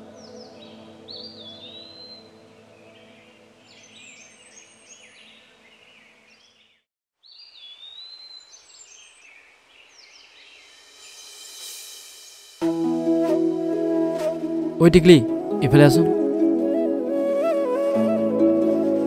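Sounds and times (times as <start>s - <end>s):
soft musical drone: 0.0s - 4.7s, 12.6s - 19.0s
birds chirping and whistling: 0.2s - 11.3s
rising hiss: 10.3s - 13.7s.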